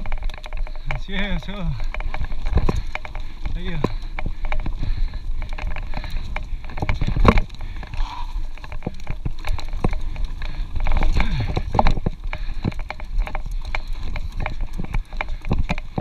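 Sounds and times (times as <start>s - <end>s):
bike clacking and rattling: 0.0s - 16.0s
bike tyres rumbling on dirt: 0.0s - 16.0s.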